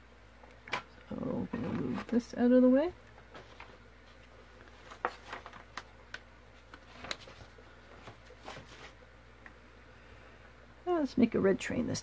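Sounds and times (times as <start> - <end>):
paper rustling on tabletop: 3.3 - 9.0.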